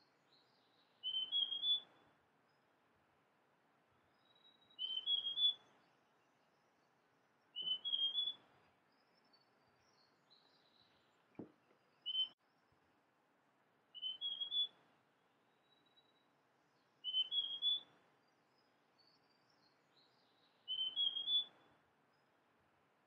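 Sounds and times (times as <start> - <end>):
bird whistling song: 0.3 - 2.0, 4.2 - 5.9, 7.5 - 8.5, 12.0 - 12.4, 13.9 - 14.8, 16.8 - 21.7.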